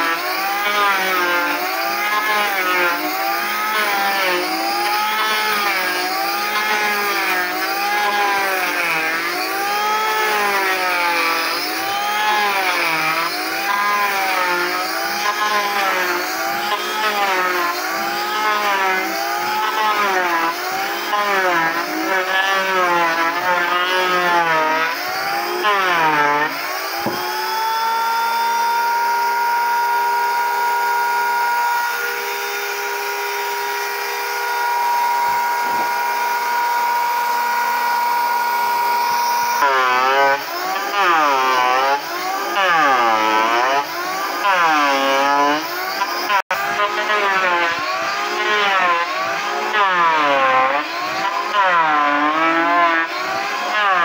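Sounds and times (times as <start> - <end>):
electric hand planer whining: 0.0 - 54.0.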